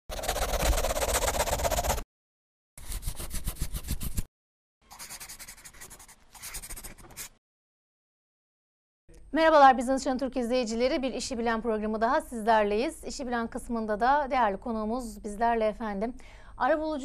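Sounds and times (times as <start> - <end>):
marker scribbling on paper: 0.1 - 2.0, 2.8 - 4.3, 4.9 - 7.4.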